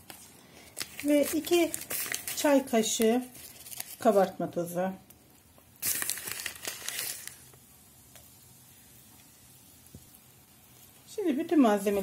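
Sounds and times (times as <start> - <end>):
packet crinkling and rustling: 0.0 - 4.5, 5.8 - 7.6.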